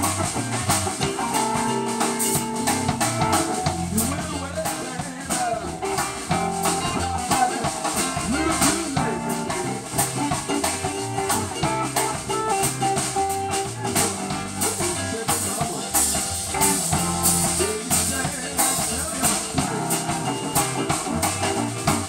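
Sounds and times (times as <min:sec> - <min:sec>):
drum and cymbal hits: 0:00.0 - 0:22.0
live blues band playing: 0:00.0 - 0:22.0.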